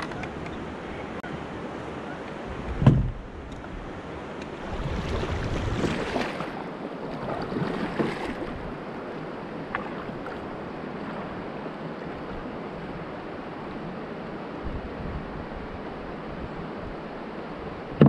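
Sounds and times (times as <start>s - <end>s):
current rushing along hull: 0.0s - 18.0s
paddle strokes splashing: 3.6s - 13.0s.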